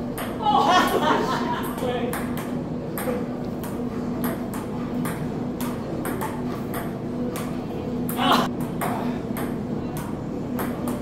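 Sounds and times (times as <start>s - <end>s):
ping-pong ball clicking: 2.1s - 7.5s.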